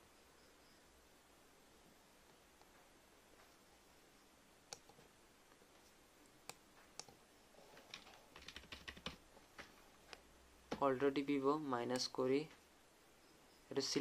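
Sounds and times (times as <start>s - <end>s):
mouse and keyboard clicks: 4.7s - 5.0s, 6.4s - 9.2s.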